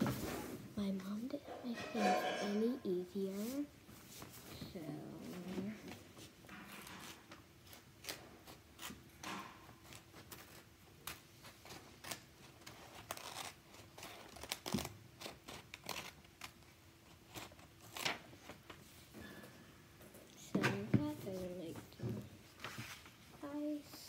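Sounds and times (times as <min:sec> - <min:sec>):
scissors snipping paper: 0:07.6 - 0:18.2.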